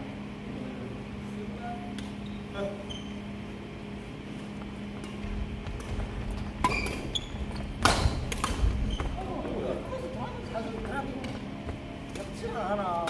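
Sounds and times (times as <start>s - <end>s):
shoe squeaks: 2.2s - 3.4s, 6.2s - 9.4s
rackets striking shuttlecock: 7.8s - 9.2s.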